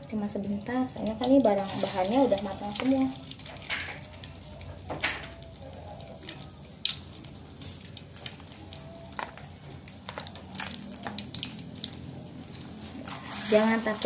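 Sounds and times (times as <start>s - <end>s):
food sizzling in hot oil: 0.0s - 14.0s
oil crackles: 0.0s - 14.0s.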